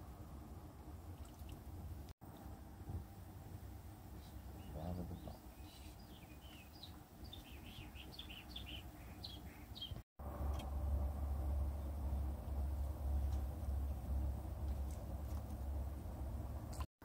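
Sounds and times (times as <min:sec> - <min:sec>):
small birds chirping: 0:03.7 - 0:10.0
low rumble: 0:10.2 - 0:16.8.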